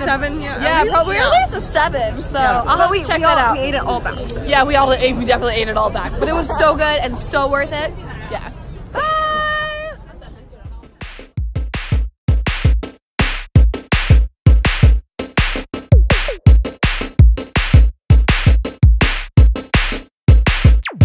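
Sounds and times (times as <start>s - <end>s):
drum machine beat: 10.7s - 21.0s
electronic music: 11.0s - 21.0s.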